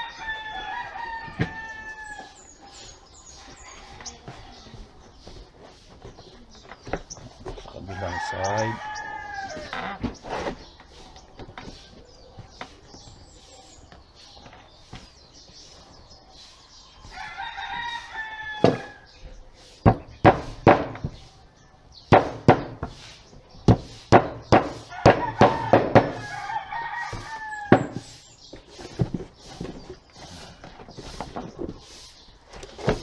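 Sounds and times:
rooster crowing: 7.9s - 9.9s, 17.1s - 19.1s, 24.9s - 28.0s.

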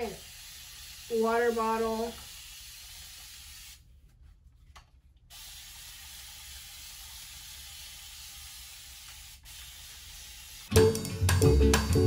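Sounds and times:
spray bottle misting water: 0.0s - 3.9s, 5.3s - 11.0s.

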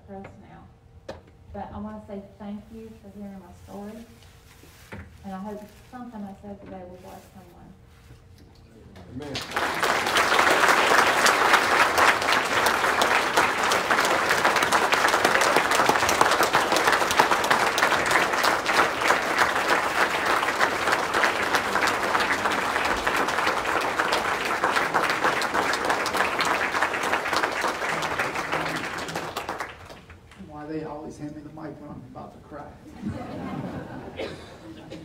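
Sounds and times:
congregation applauding: 9.1s - 30.4s.

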